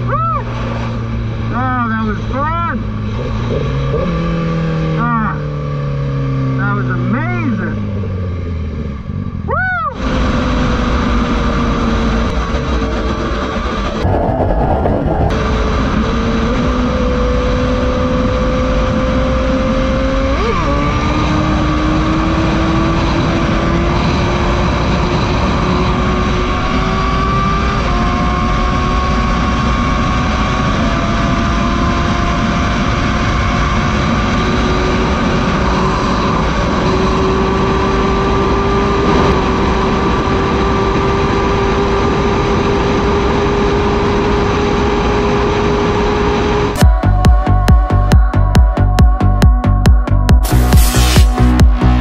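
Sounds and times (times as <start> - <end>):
heavy wind rush: 6.3 - 18.4, 33.8 - 42.0
motorcycle engine pulling hard: 10.0 - 47.3.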